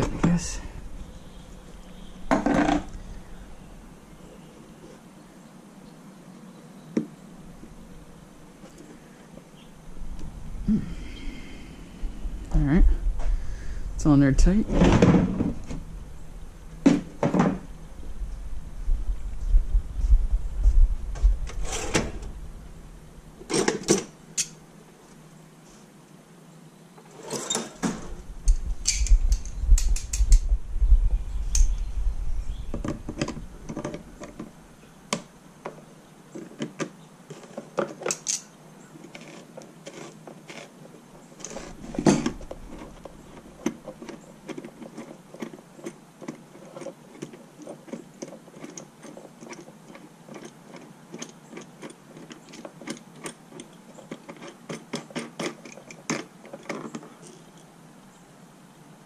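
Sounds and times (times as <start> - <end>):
low rumble: 9.8 - 16.8, 17.6 - 23.4, 28.0 - 33.7
clicks and clatter of assembly work: 27.1 - 30.5, 36.4 - 40.7, 41.4 - 57.7.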